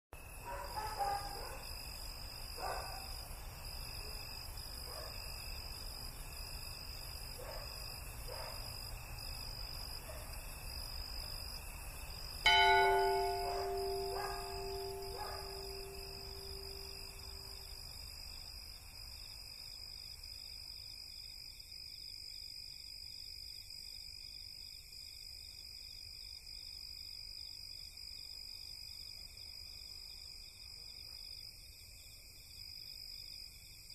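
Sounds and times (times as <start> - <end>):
night insects chirring: 0.2 - 33.9
loud metallic strike ringing: 12.5 - 17.3.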